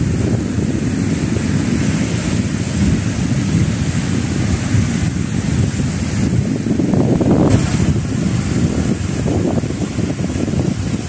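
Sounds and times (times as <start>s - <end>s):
waves washing onto pebbles: 0.0s - 11.0s
wind buffeting microphone: 0.0s - 11.0s.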